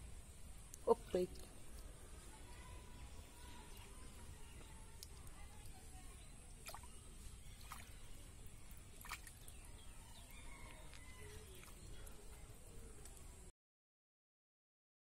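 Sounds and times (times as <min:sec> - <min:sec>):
hand sloshing in muddy water: 0:06.6 - 0:08.2, 0:08.8 - 0:09.6.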